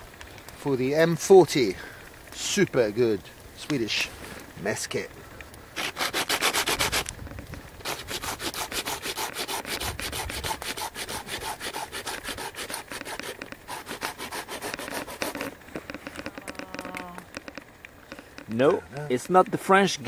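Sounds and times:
rasping on wood: 0:05.8 - 0:07.1, 0:07.8 - 0:15.6.

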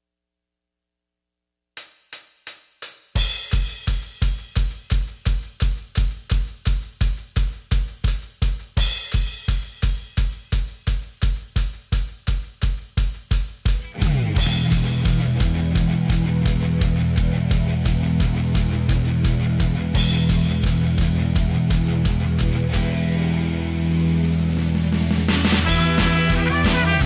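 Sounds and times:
kick drum beat with hi-hat: 0:01.8 - 0:23.0, 0:25.6 - 0:27.0
drum hits: 0:13.2 - 0:22.9, 0:25.2 - 0:27.0.

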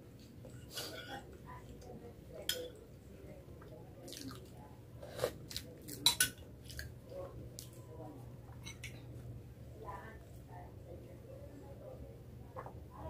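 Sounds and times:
chewing and wet mouth noises: 0:04.0 - 0:07.8.

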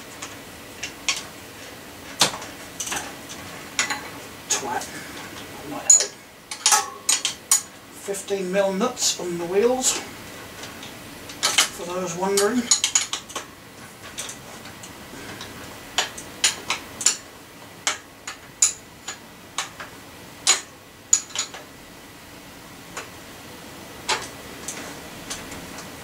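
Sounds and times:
spanner clicking on axle nuts: 0:12.4 - 0:13.5, 0:17.8 - 0:21.6.

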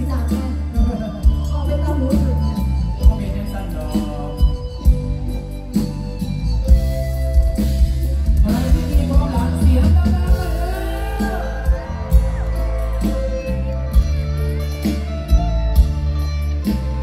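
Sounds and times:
live band music over speakers: 0:00.0 - 0:17.0
person singing: 0:08.3 - 0:15.0.

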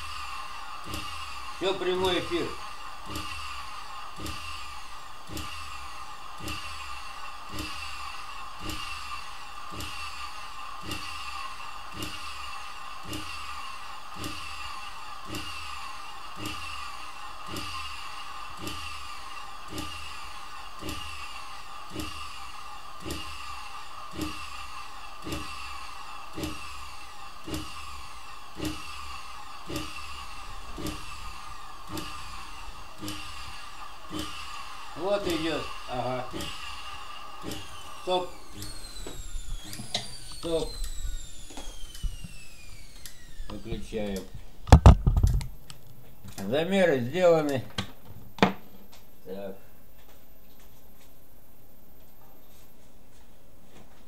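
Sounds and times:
vacuum motor whine: 0:00.0 - 0:49.1.

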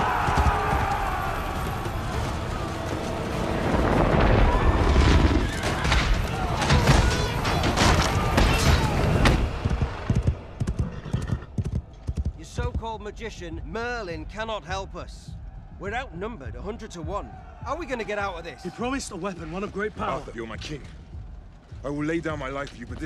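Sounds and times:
soldiers shouting: 0:00.0 - 0:03.6
horses: 0:00.0 - 0:04.0, 0:09.6 - 0:12.4
dramatic music: 0:00.0 - 0:23.0.

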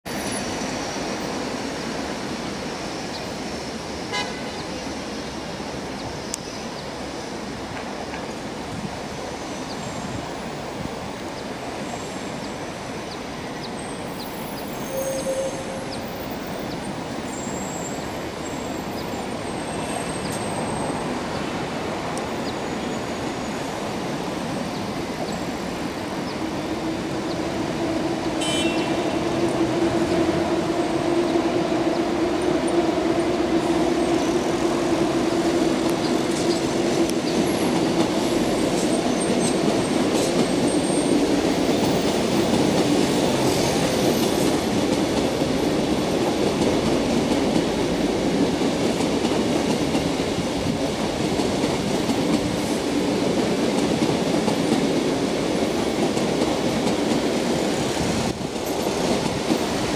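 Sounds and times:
city traffic noise: 0:00.0 - 0:59.9
approaching train hum: 0:00.1 - 0:59.9
car horn toot: 0:04.1 - 0:04.4, 0:28.4 - 0:29.0.

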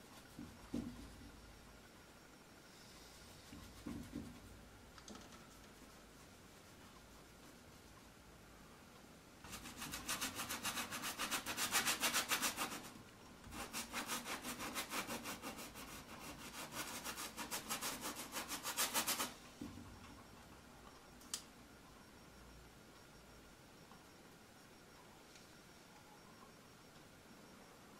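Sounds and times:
paintbrush scrubbing on canvas: 0:09.5 - 0:19.4.

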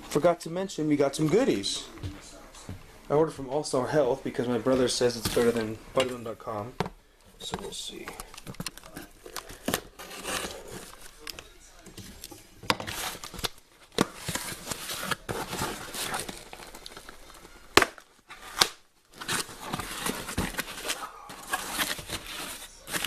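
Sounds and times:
packing paper crumpling: 0:07.7 - 0:23.0.

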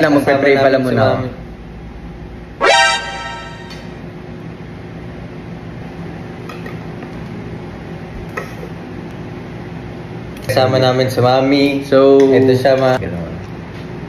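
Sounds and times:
loud tone: 0:02.6 - 0:04.0.

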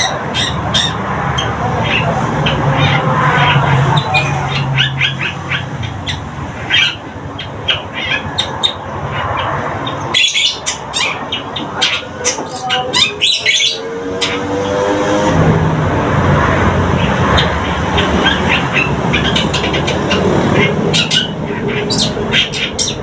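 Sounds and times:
bird harsh chirps and squawks: 0:00.0 - 0:15.2, 0:16.8 - 0:23.0.

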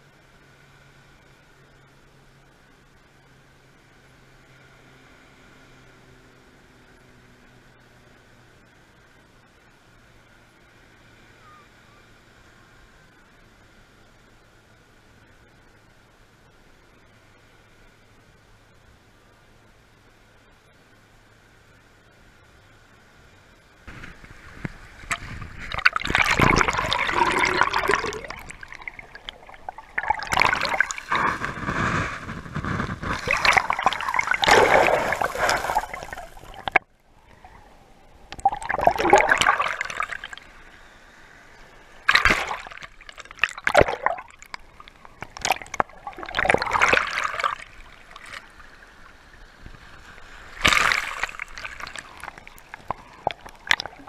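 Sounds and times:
waves splashing and gurgling: 0:23.2 - 0:54.0.

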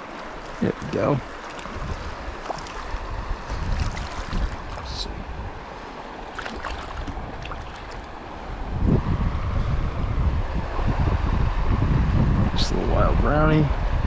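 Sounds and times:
river water rushing over rocks: 0:00.0 - 0:08.6
wind buffeting microphone: 0:00.6 - 0:14.0.

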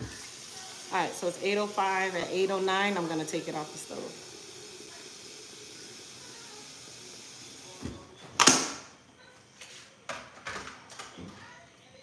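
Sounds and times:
stovetop hiss: 0:00.0 - 0:07.9.

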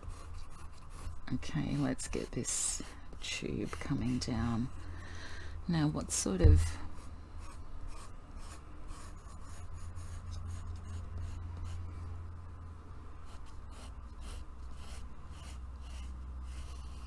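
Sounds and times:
pencil scratching on paper: 0:00.0 - 0:04.8, 0:07.0 - 0:11.8, 0:13.2 - 0:17.0
steady low hum: 0:00.0 - 0:17.0.

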